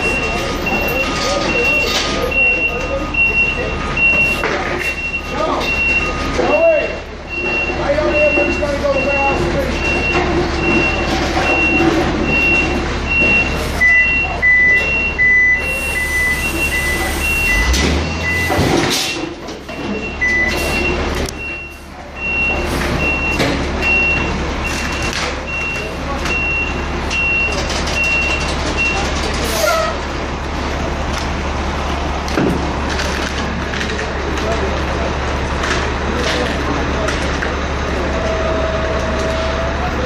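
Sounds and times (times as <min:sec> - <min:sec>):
reversing alarm beeping: 0:00.0 - 0:30.0, 0:38.0 - 0:40.0.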